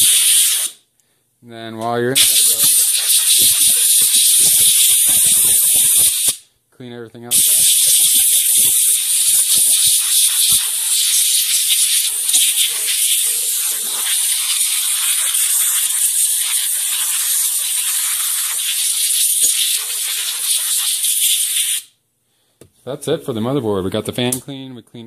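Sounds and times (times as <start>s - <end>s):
compressed air hissing: 0.0s - 0.8s, 2.2s - 6.5s, 7.3s - 22.0s.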